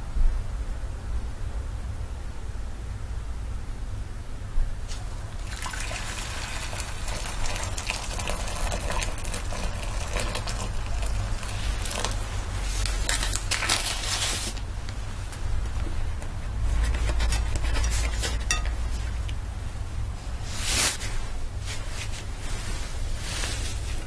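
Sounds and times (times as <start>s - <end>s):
steady low hum: 0.0s - 24.0s
water pouring into a ceramic bowl: 5.4s - 12.3s.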